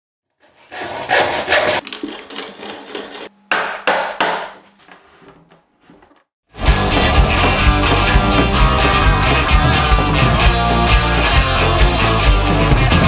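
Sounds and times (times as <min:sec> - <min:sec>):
handsaw cutting wood: 0:00.3 - 0:03.3, 0:07.0 - 0:11.1.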